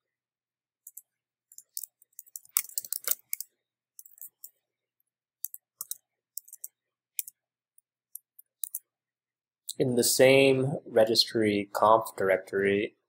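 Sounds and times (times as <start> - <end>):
computer keyboard keystrokes: 1.6 - 3.4, 5.4 - 7.3.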